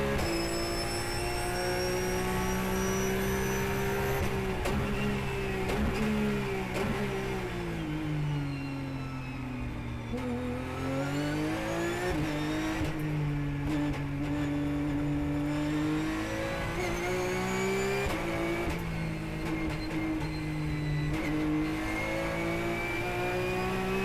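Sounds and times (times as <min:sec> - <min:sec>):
race car engine from cockpit: 0:00.0 - 0:24.0.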